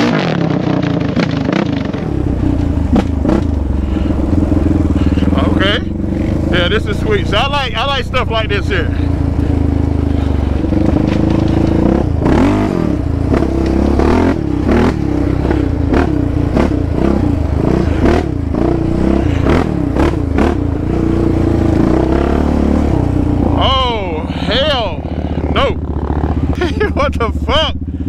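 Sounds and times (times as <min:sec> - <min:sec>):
knocks and clatter on rough trail: 0:00.0 - 0:22.2
quad bike engine revving: 0:00.0 - 0:28.0.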